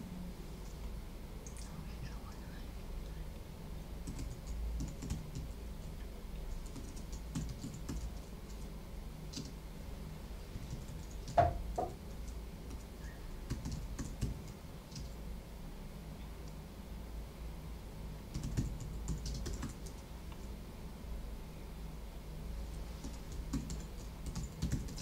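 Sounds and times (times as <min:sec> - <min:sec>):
typing on computer keyboard: 0:04.0 - 0:05.5, 0:06.5 - 0:08.7, 0:09.3 - 0:09.6, 0:10.7 - 0:11.5, 0:12.2 - 0:15.2, 0:18.3 - 0:20.0, 0:23.0 - 0:25.0.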